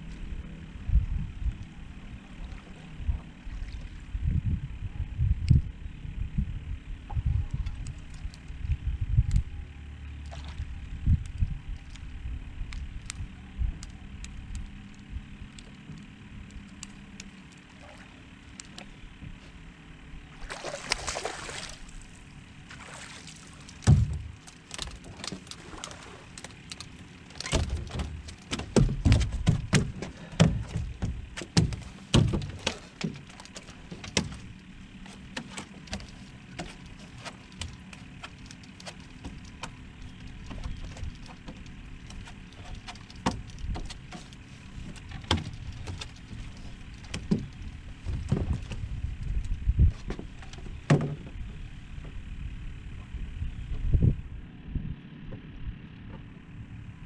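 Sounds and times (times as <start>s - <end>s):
clatter on boat deck: 23.6s - 52.2s
thumps on boat deck: 23.8s - 24.4s, 27.4s - 34.4s, 44.8s - 48.9s, 49.9s - 51.4s.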